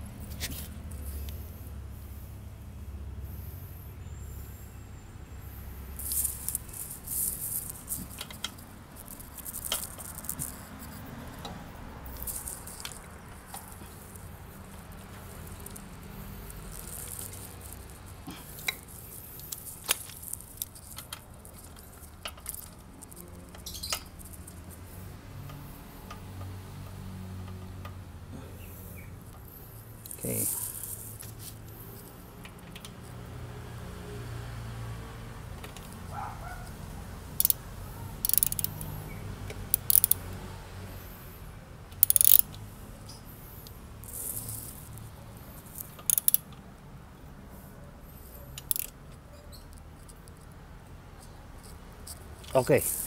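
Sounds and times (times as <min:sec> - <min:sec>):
rustling: 0:05.6 - 0:25.9, 0:29.2 - 0:32.7, 0:43.4 - 0:46.5, 0:51.1 - 0:53.0
small clicks and rattles of bolts: 0:06.0 - 0:28.1, 0:29.2 - 0:33.3, 0:35.5 - 0:36.2, 0:37.3 - 0:40.4, 0:41.9 - 0:42.7, 0:43.6 - 0:46.8, 0:48.5 - 0:53.0.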